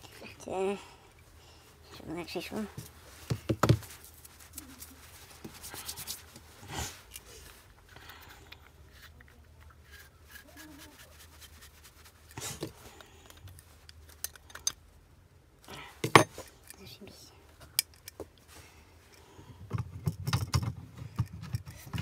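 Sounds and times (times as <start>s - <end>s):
light rubbing of small parts: 0.0s - 15.0s, 16.0s - 22.0s.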